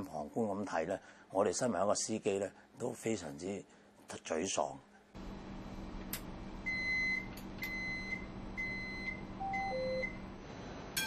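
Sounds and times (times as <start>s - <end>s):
electrical hum: 0.0s - 11.0s
warning beeps: 6.7s - 10.2s.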